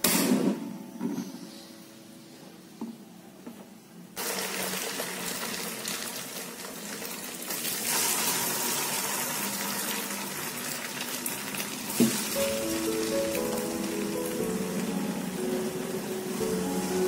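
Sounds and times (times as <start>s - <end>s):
batter sizzling in oil: 4.2s - 17.0s.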